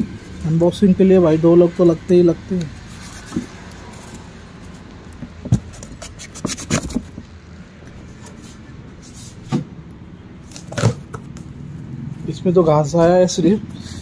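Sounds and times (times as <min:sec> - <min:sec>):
blade cutting cardboard box: 0:05.5 - 0:07.2.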